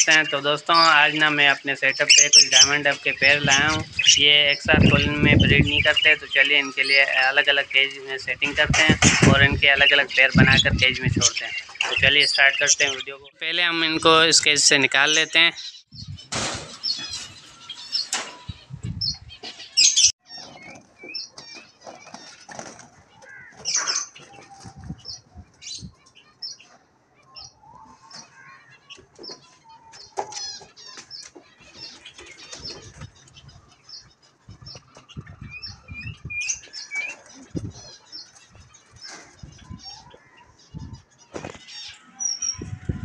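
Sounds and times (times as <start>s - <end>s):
high bird chirps: 0.0s - 43.0s
birds flapping wings: 21.8s - 24.8s.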